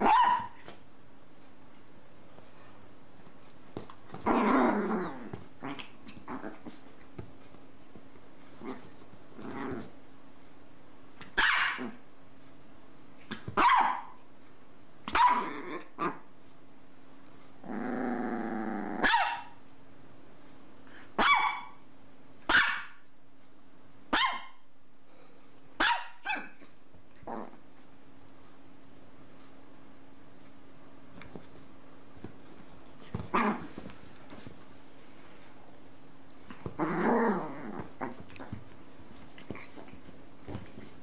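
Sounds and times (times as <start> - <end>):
small dog yapping: 0.0 - 0.7, 11.2 - 12.0, 13.3 - 14.2, 15.1 - 16.2, 19.0 - 19.6, 21.2 - 21.8, 22.5 - 23.0, 24.1 - 24.6, 25.8 - 26.7
dog growling: 4.2 - 6.8, 8.6 - 10.0, 17.6 - 19.0, 36.5 - 38.7.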